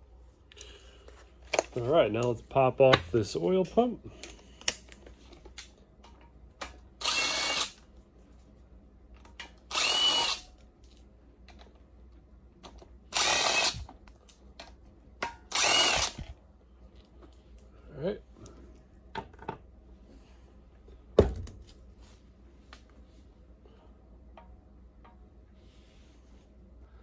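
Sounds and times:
cordless drill motor whine: 7.0s - 7.8s, 9.7s - 10.5s, 13.1s - 13.9s, 15.5s - 16.3s.

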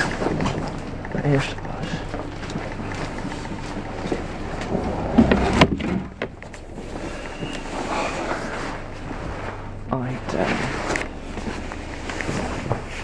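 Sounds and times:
railway coach rumble: 0.0s - 13.0s
door clunks and bang: 4.7s - 6.4s.

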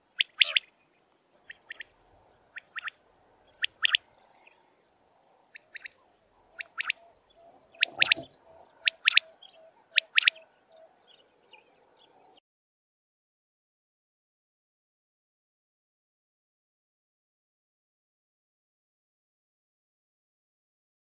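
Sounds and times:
quail calling: 0.1s - 0.8s, 1.4s - 4.8s, 5.4s - 12.4s.

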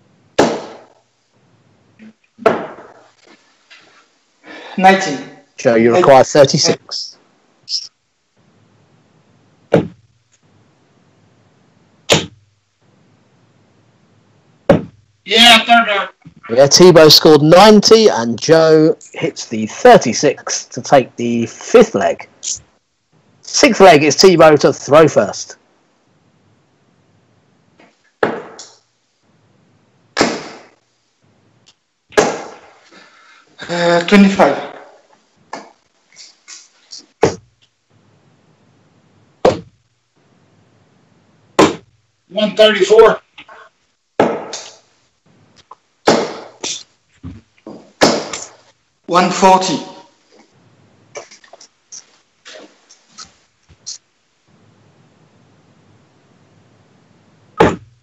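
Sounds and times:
faint hiss: 0.0s - 58.0s
darts thudding into dartboard: 0.4s - 0.9s, 2.4s - 3.0s, 9.7s - 10.0s, 12.1s - 12.4s, 28.2s - 28.8s, 39.4s - 39.8s, 41.6s - 41.9s, 44.2s - 44.8s, 46.1s - 46.8s, 47.7s - 48.6s
dart hitting dartboard: 2.4s - 2.9s, 12.1s - 12.4s, 44.2s - 44.7s.

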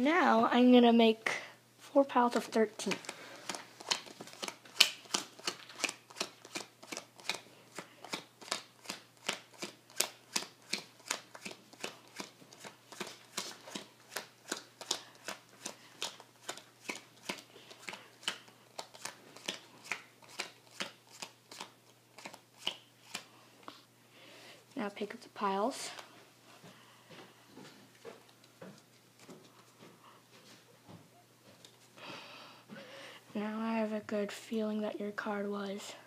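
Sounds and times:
playing cards snapping: 2.9s - 23.3s.

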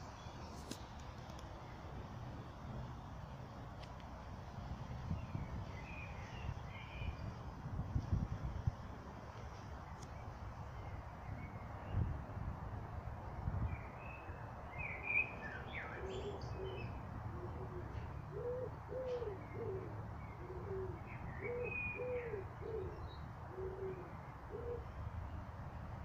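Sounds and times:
dove cooing: 16.0s - 24.9s.

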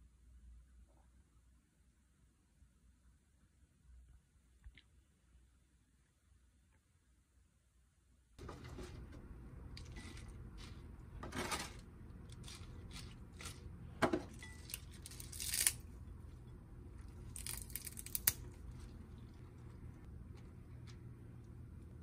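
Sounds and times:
low steady hum: 0.0s - 22.0s
lettuce leaves tearing: 14.6s - 15.9s, 17.2s - 18.7s.

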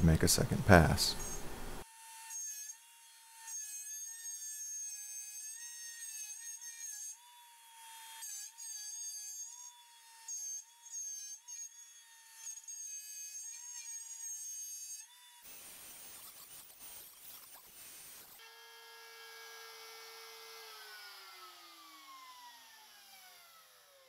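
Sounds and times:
router high-pitched whine: 15.5s - 24.0s.

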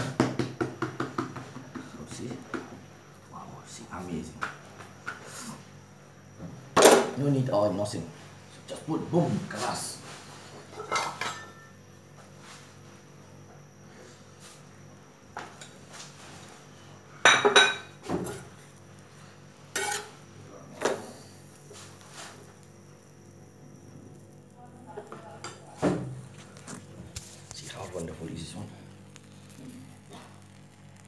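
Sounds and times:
faint steady hum: 0.0s - 31.0s
utensils and dishes clinking: 10.8s - 11.7s.

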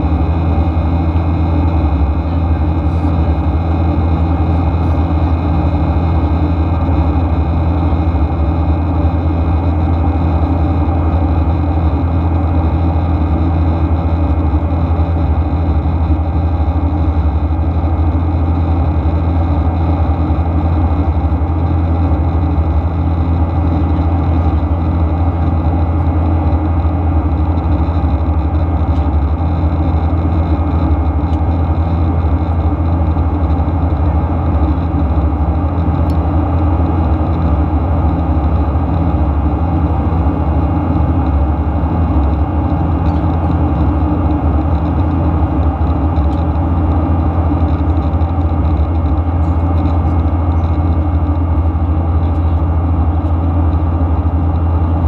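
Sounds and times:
jet engines droning: 0.0s - 55.0s.

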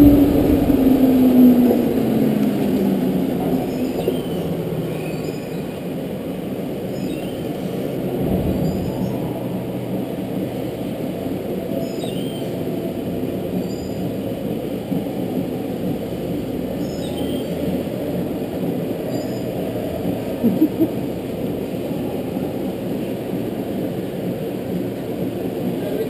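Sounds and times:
go-kart motor rumble: 0.0s - 11.8s.

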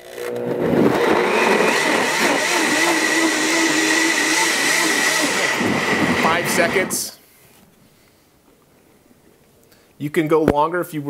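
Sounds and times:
blender running at high speed: 0.0s - 7.0s.

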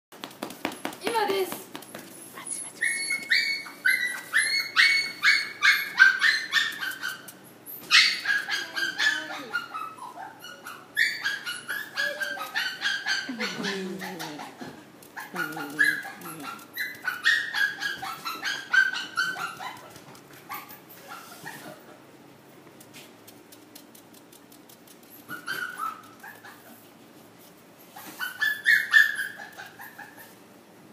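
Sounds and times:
puppy yelping: 2.4s - 21.8s, 25.1s - 26.8s, 27.9s - 30.4s.

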